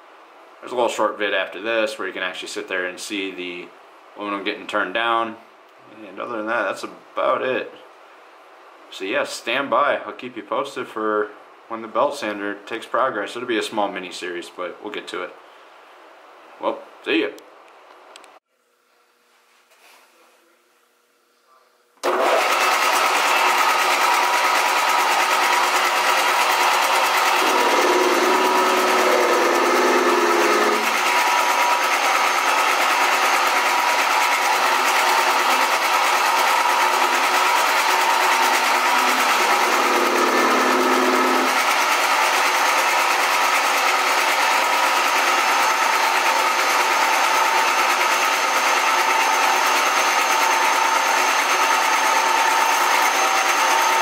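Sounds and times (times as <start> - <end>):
metal lathe whining: 22.0 - 54.0.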